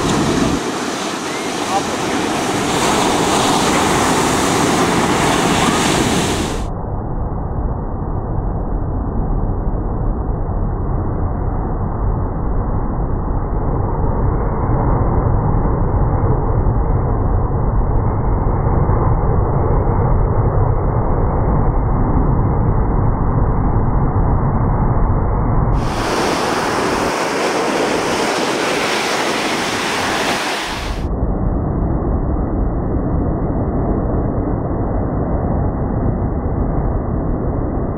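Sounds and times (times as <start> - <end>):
muffled breaking surf: 0.0 - 6.7, 25.8 - 31.1.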